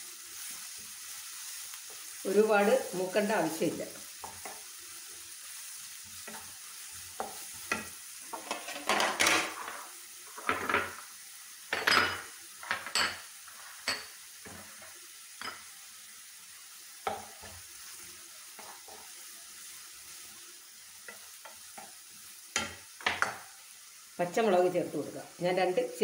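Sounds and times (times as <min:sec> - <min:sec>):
onions sizzling in oil: 0:00.0 - 0:26.0
wooden spatula scraping pan: 0:07.2 - 0:11.0.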